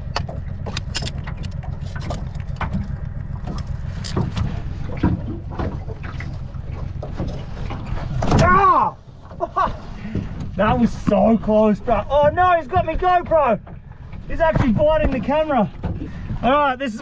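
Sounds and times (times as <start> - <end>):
camera handling rumble: 0.0 - 8.3
knocks and scrapes: 0.0 - 17.0.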